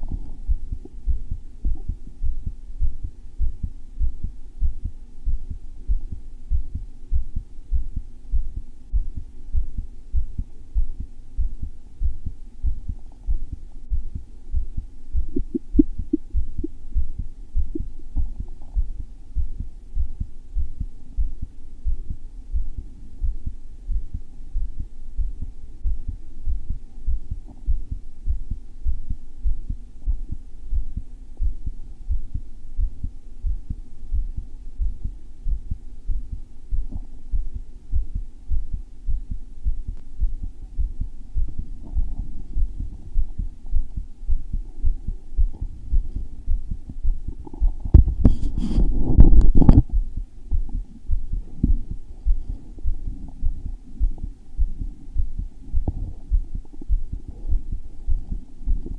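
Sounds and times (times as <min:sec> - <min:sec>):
fast thumping heartbeat: 0:00.0 - 0:58.9.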